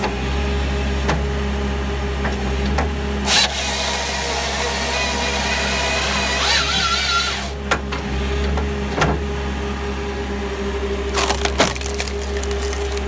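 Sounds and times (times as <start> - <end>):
machine engine and hydraulics drone: 0.0 - 13.0
wood cracking and splintering: 11.0 - 13.0.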